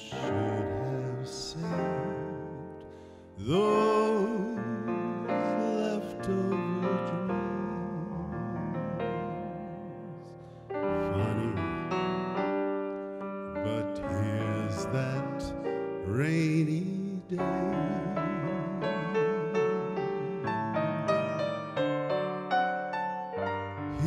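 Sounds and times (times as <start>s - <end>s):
man singing with vibrato: 0.0s - 12.1s, 13.5s - 21.0s
piano playing slow jazz ballad: 0.0s - 24.0s.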